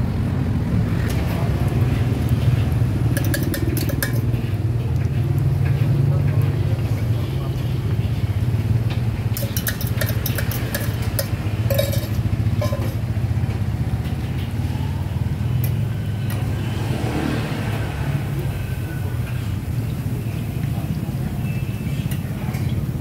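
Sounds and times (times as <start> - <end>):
street traffic rumble: 0.0 - 23.0
fork clicking on steel griddle: 3.2 - 4.2, 9.4 - 13.0.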